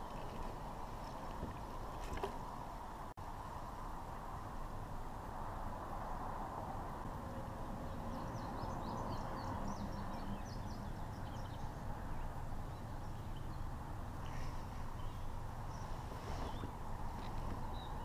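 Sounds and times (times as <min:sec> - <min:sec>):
songbird chirping: 0:07.7 - 0:18.0.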